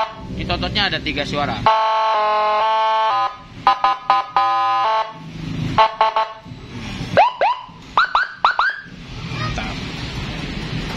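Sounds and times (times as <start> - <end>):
electronic siren horn blasts: 1.6 - 5.2, 5.8 - 6.4
siren rising chirps: 7.2 - 9.0.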